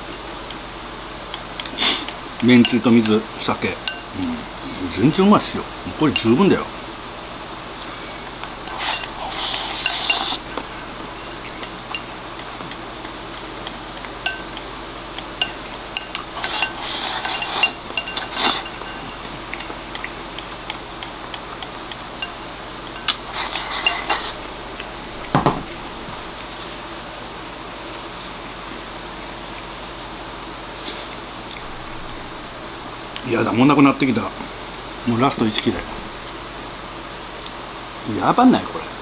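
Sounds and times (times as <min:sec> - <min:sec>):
chopsticks scraping a ceramic bowl: 0:08.4 - 0:12.8, 0:13.6 - 0:20.1, 0:21.0 - 0:24.4.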